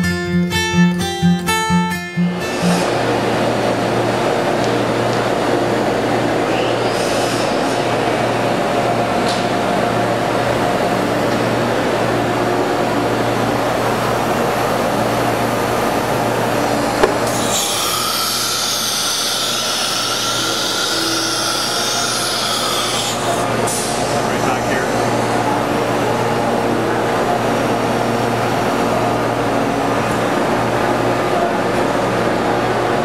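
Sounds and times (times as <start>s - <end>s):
machine hum: 2.2s - 33.0s
spindle whining high pitch: 16.7s - 27.2s.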